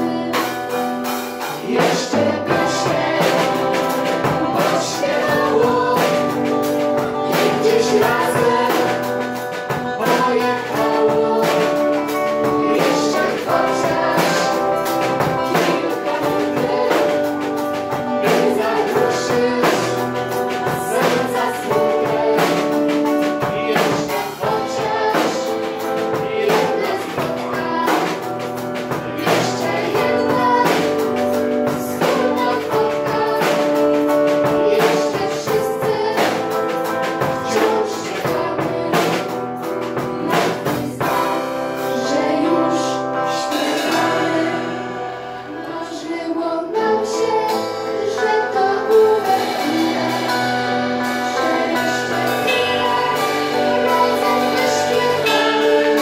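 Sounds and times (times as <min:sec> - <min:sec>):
strummed acoustic guitars: 0:00.0 - 0:42.2, 0:47.2 - 0:56.0
accordion: 0:00.0 - 0:56.0
girls singing together: 0:01.5 - 0:39.3, 0:40.0 - 0:56.0.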